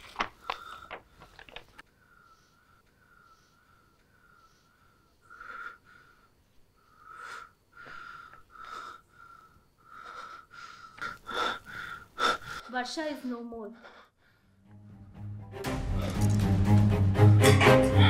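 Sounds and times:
man breathing heavily: 0:00.2 - 0:12.8, 0:13.8 - 0:14.7, 0:15.8 - 0:16.5.

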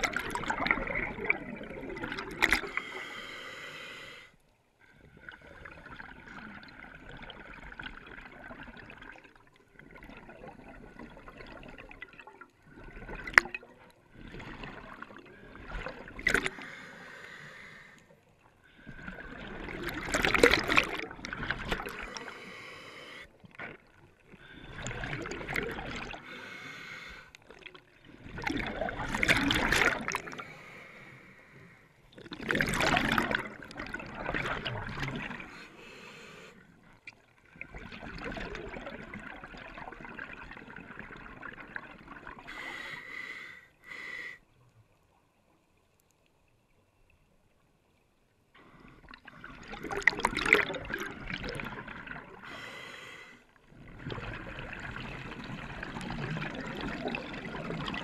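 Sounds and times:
exhaled bubbles bursting: 0:00.0 - 0:02.8, 0:05.3 - 0:16.6, 0:18.9 - 0:22.2, 0:23.5 - 0:26.2, 0:27.6 - 0:30.4, 0:32.1 - 0:35.5, 0:37.5 - 0:42.5, 0:49.1 - 0:52.4, 0:53.7 - 0:58.0
scuba regulator hissing inhalations: 0:02.6 - 0:04.4, 0:16.5 - 0:18.1, 0:22.0 - 0:23.3, 0:26.2 - 0:27.3, 0:35.5 - 0:36.7, 0:42.5 - 0:44.4, 0:52.4 - 0:53.5.

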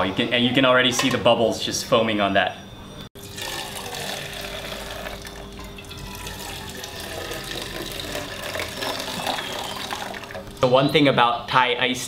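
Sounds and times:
tea pouring into a metal pitcher: 0:03.2 - 0:10.6.

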